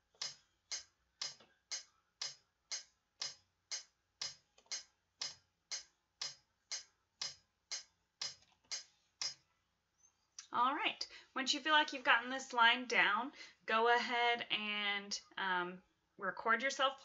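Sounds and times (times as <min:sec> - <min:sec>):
metronome clicking: 0:00.0 - 0:09.4.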